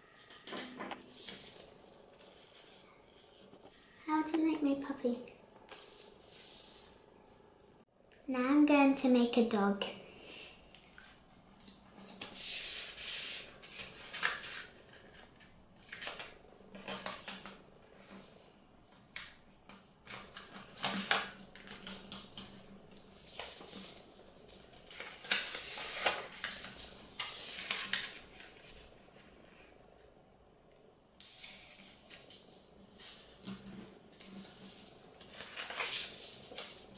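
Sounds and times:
paper folding and creasing: 11.0 - 18.4, 19.1 - 29.7, 31.2 - 36.9.

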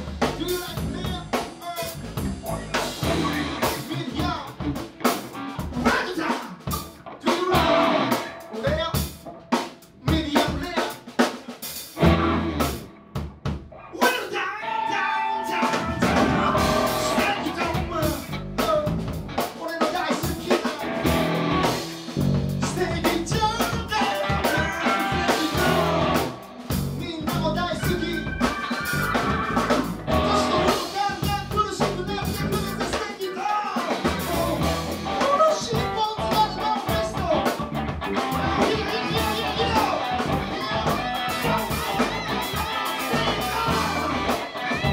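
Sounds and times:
live rock band playing: 0.0 - 44.9
man singing into a microphone: 3.2 - 4.6, 10.0 - 11.0, 14.0 - 19.0, 19.6 - 21.1, 22.6 - 26.4, 27.0 - 28.5, 30.1 - 37.6, 38.4 - 41.7, 42.9 - 44.9
drum hits: 15.7 - 33.1.

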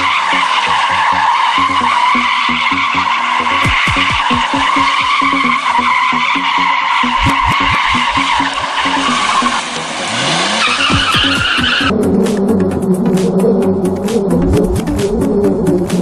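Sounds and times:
tyres squealing: 0.0 - 11.9
car engine revving: 0.0 - 16.0
electronic music with beat: 0.0 - 16.0.

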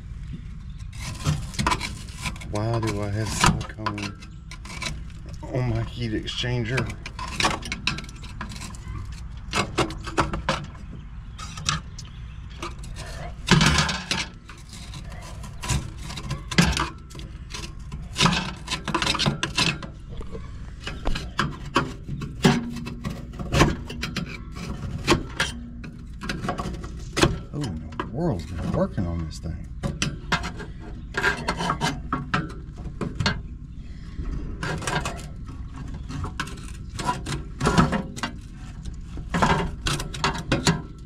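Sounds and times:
screwdriver scraping on metal: 0.7 - 33.3.

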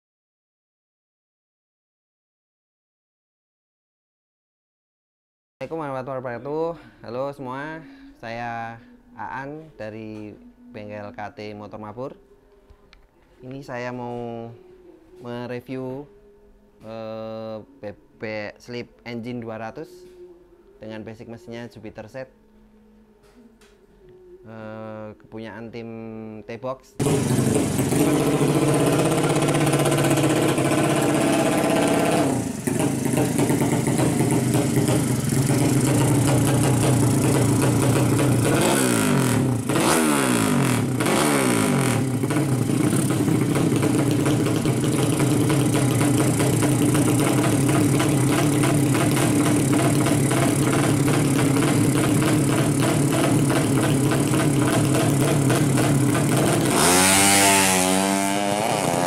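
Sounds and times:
motorcycle engine idling: 27.0 - 39.9, 40.7 - 58.9.

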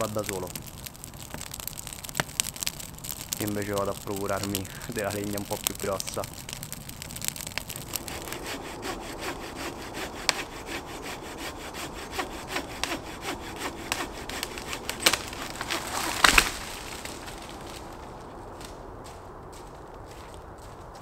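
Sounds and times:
wood cracking: 0.0 - 20.7
hand saw cutting wood: 8.0 - 16.4.

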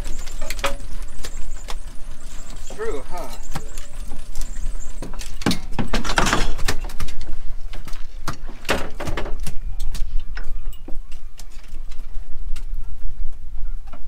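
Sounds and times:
knocks and clatter on metal deck: 5.0 - 6.9.

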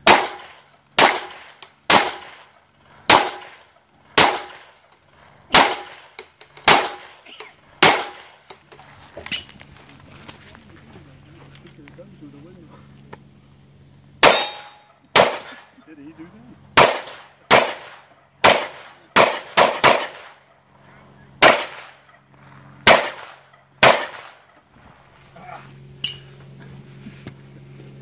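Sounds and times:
handgun shots echoing: 0.0 - 2.5, 3.1 - 4.7, 5.5 - 7.2, 7.8 - 8.3, 14.2 - 15.7, 16.8 - 20.4, 21.4 - 22.0, 22.9 - 24.4
sharp metallic clank: 14.2 - 15.5.

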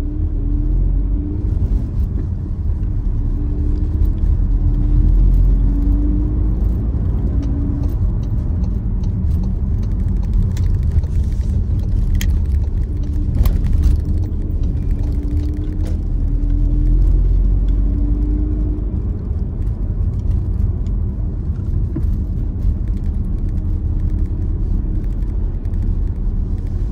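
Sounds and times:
car engine rumble from inside: 0.0 - 26.9.

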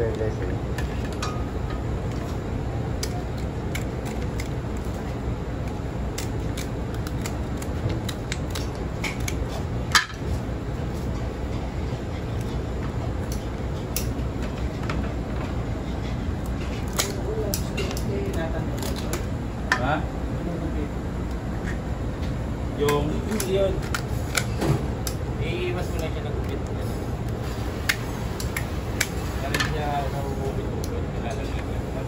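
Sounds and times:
steady low hum: 0.0 - 32.0
scissors snipping crab shells: 2.9 - 9.7, 13.2 - 14.2, 16.4 - 19.3, 22.8 - 25.2, 27.8 - 29.7.

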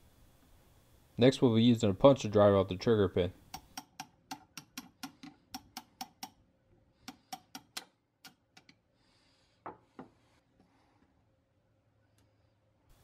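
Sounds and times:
hammer tapping metal punch: 3.5 - 6.4, 7.0 - 8.8.

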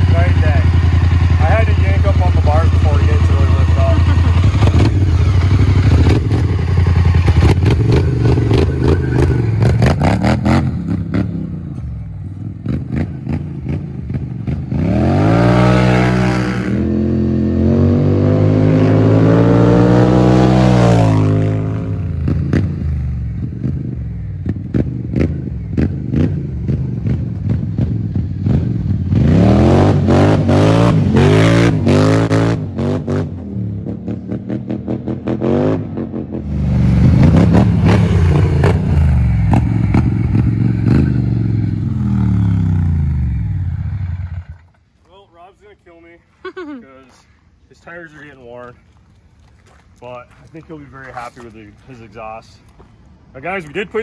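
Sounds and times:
atv engine revving loudly: 0.0 - 11.6, 12.4 - 44.6
atv driving by: 0.0 - 11.7, 12.6 - 23.7.

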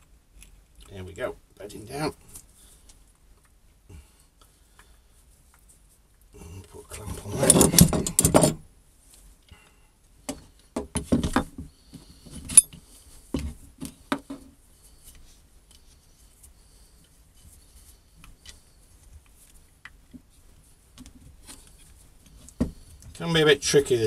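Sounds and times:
metal clamp clicks and knocks: 7.4 - 8.6.

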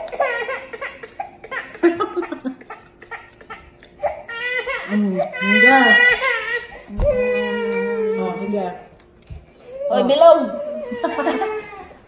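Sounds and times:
people laughing: 1.6 - 2.8, 10.8 - 11.9.

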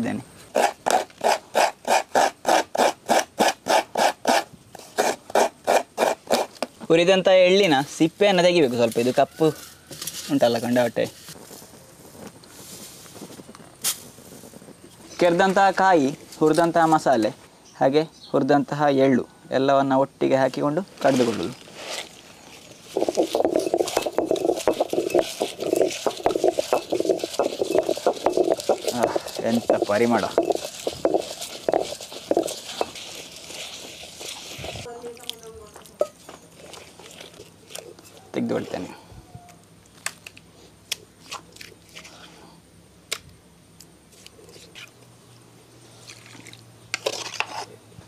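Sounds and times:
stone grinding gritty paste: 0.5 - 6.6, 22.0 - 34.9, 47.0 - 47.7.

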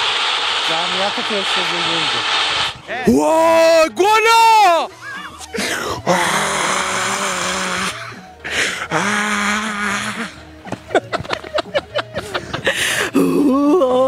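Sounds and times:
man laughing: 4.9 - 5.4, 8.9 - 14.0
man making held cries: 5.7 - 8.2, 8.9 - 10.4.

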